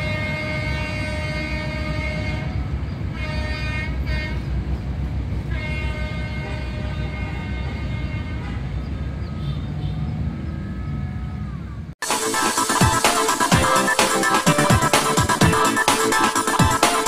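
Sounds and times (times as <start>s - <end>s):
train horn blasts: 0.0s - 4.6s, 5.4s - 9.7s, 10.5s - 11.6s.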